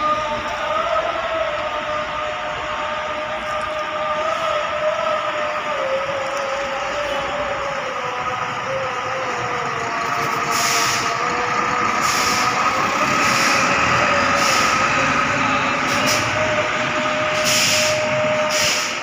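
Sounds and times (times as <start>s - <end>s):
bus engine whine: 0.0s - 19.0s
short air hisses: 10.5s - 11.1s, 12.0s - 12.5s, 13.2s - 13.7s, 15.9s - 16.4s, 17.4s - 19.0s.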